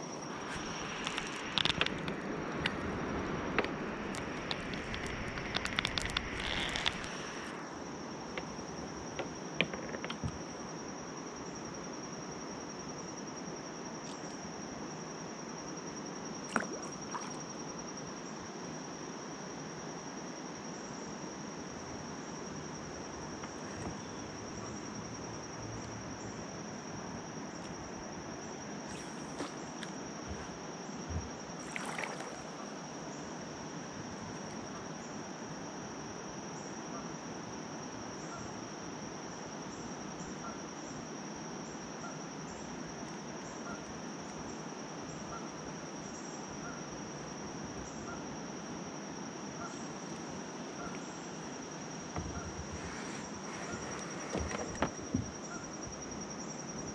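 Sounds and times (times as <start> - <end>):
high-pitched insect chorus: 0.0 - 56.9.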